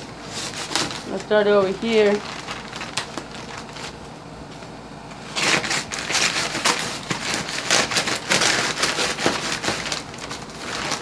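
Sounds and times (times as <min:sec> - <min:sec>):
envelope crinkling: 0:00.3 - 0:04.1, 0:05.2 - 0:11.0
knife slicing envelope: 0:05.3 - 0:11.0.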